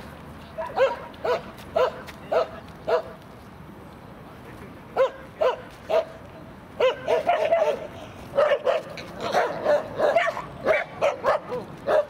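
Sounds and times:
dogs barking in high yaps: 0.6s - 3.2s, 6.8s - 12.0s.

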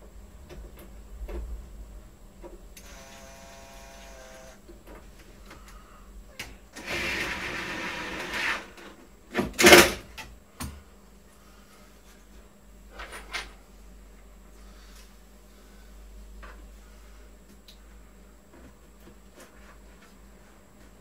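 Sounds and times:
cordless drill whirring: 2.8s - 4.6s.

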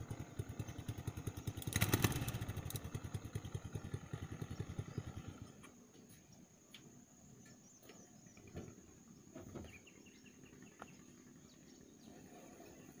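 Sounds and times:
bird chirps: 7.2s - 13.0s.

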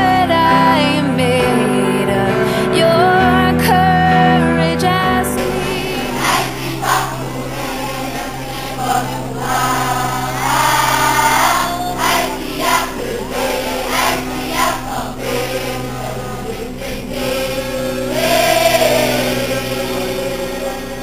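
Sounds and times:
children singing in chorus: 5.4s - 21.0s.

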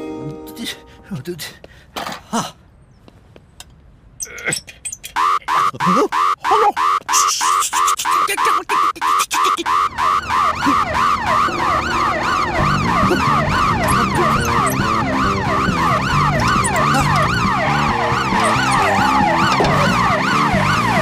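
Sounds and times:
fast wailing electronic siren: 5.2s - 21.0s
cartoon music with bass line: 12.6s - 21.0s.

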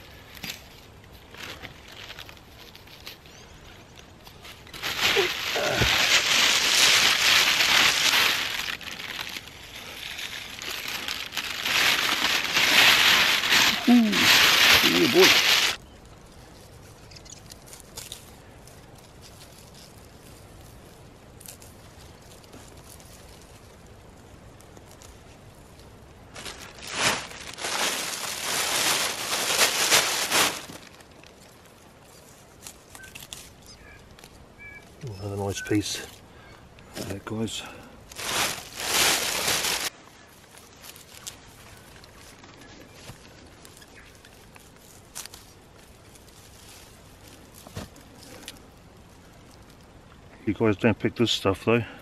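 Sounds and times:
leafy stems rustling: 0.0s - 51.8s
plastic bag crinkling: 4.3s - 15.8s, 26.3s - 33.5s, 38.1s - 48.5s.

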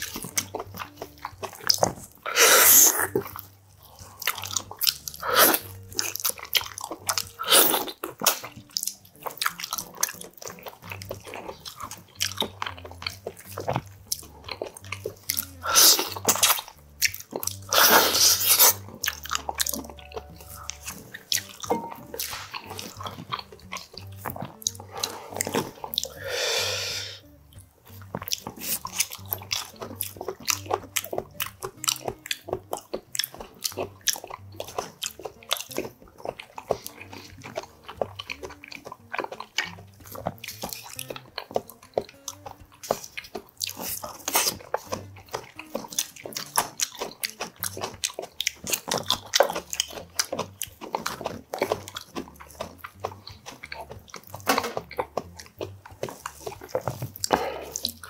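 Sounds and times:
wet chewing and lip-smacking: 0.0s - 58.0s.

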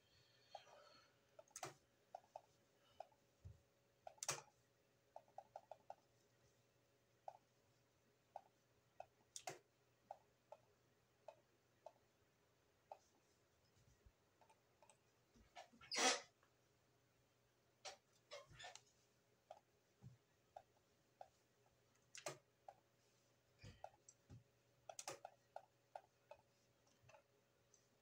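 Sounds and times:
computer mouse clicking: 0.5s - 3.2s, 4.0s - 4.5s, 5.1s - 6.1s, 8.3s - 12.1s, 22.0s - 22.8s, 24.8s - 27.9s.

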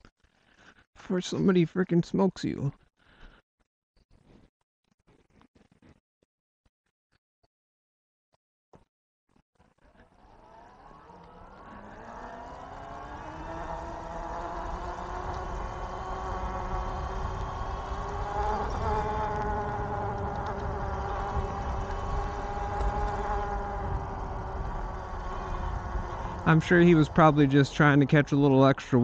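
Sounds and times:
electric motor whining: 9.9s - 28.4s
low wind rumble: 10.4s - 29.0s.

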